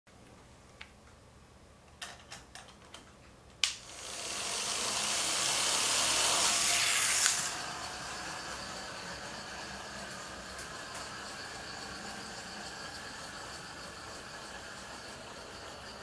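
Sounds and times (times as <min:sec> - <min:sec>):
toy motor whirring: 0:03.7 - 0:16.0
toy train running on plastic track: 0:03.8 - 0:16.0.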